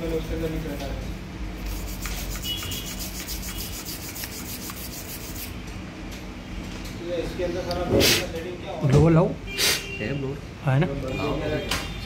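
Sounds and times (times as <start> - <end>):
brush scrubbing inside laptop: 1.6 - 5.6.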